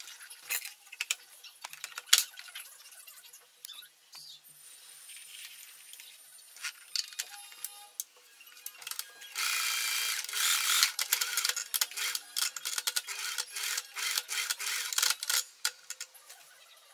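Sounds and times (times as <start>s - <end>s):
sewing machine running fast: 9.4s - 15.4s.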